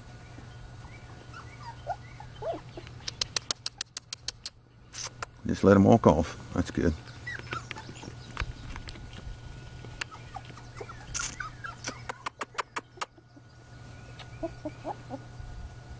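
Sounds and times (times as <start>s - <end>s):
puppies squeaking and whimpering: 0.8s - 4.4s, 7.0s - 8.9s, 9.7s - 15.4s
sharp clicks: 2.8s - 5.4s.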